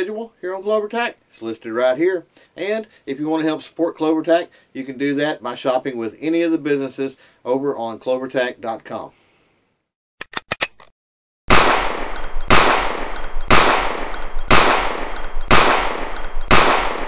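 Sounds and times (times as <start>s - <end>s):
gunshots echoing: 11.5s - 17.0s.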